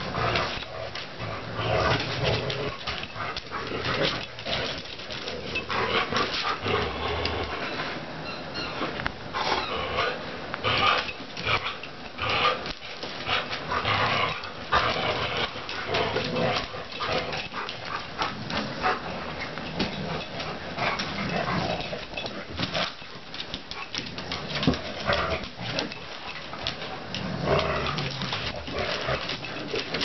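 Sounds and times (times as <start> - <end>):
dogs growling: 0.0 - 8.1, 9.3 - 23.1, 23.7 - 30.0.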